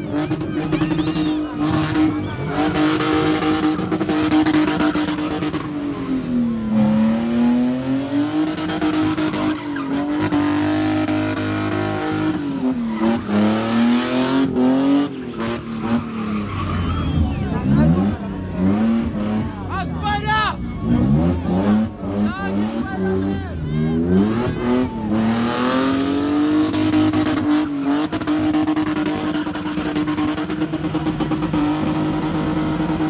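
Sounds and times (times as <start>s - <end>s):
car engine revving high: 0.0s - 33.0s
tyres screeching: 8.6s - 30.4s.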